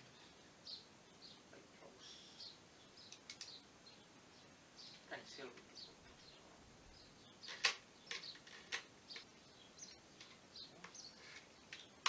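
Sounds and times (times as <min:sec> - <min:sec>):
small birds chirping faintly: 0:00.0 - 0:12.0
tools and timber clicking: 0:03.1 - 0:03.6, 0:07.4 - 0:09.3.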